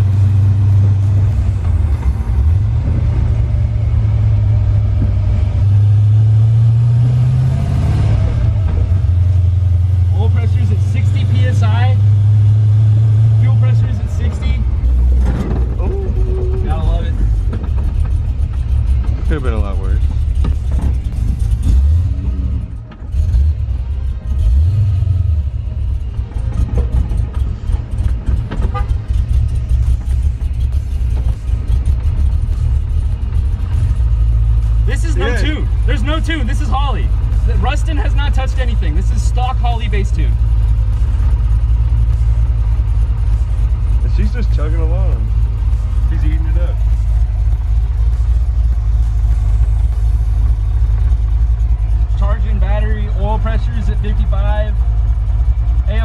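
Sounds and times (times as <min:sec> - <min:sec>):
car engine drone: 0:00.0 - 0:56.0.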